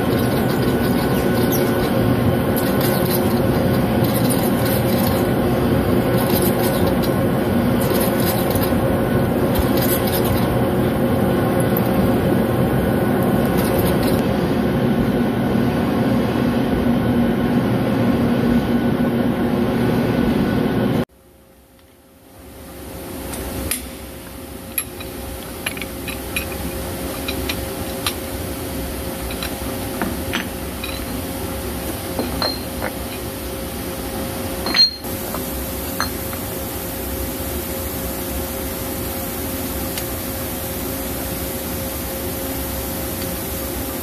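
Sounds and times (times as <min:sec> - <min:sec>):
lathe machinery humming: 0:00.0 - 0:21.0.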